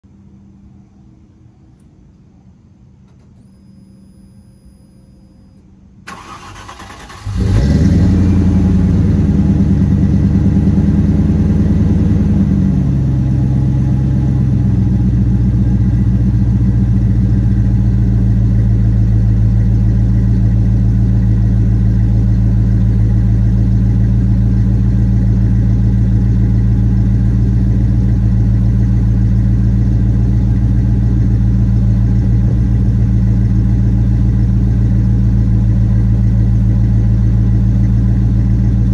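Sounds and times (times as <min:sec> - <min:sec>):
car engine idling: 0:06.0 - 0:38.9
starter motor cranking: 0:06.1 - 0:07.4.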